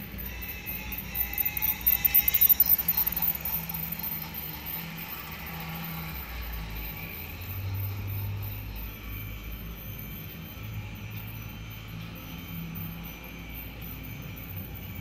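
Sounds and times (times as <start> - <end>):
toy train rattling over track: 0.0 - 6.8.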